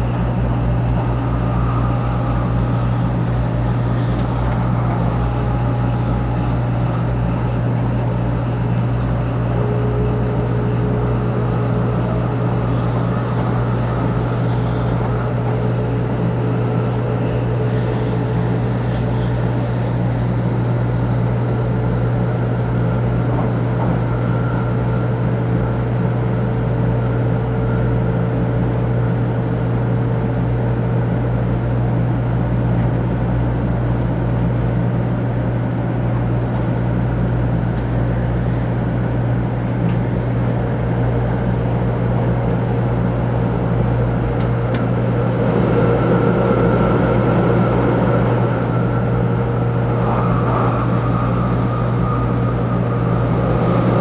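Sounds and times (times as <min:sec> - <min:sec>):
train rumble and hum: 0:00.0 - 0:54.0.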